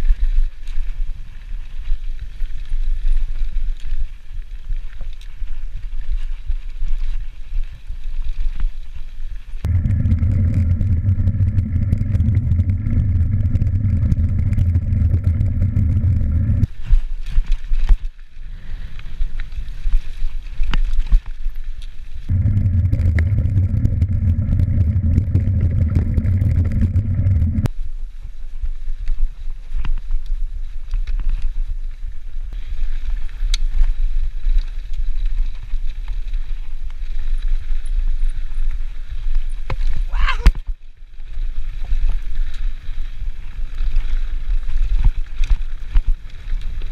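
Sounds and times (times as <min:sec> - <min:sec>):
mountain bike rattling on trail: 0:00.0 - 0:27.6, 0:28.2 - 0:40.1, 0:40.8 - 0:46.9
steady buzz: 0:09.7 - 0:16.7, 0:22.3 - 0:27.7.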